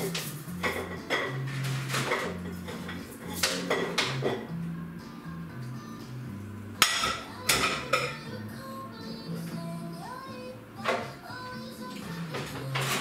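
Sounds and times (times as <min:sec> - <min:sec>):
crockery and cutlery clattering: 0:00.6 - 0:04.5, 0:06.8 - 0:08.2, 0:12.4 - 0:13.0.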